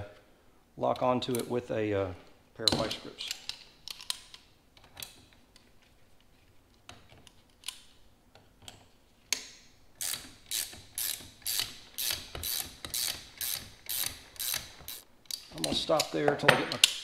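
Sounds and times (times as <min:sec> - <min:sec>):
ratchet wrench clicking: 0:10.0 - 0:15.0.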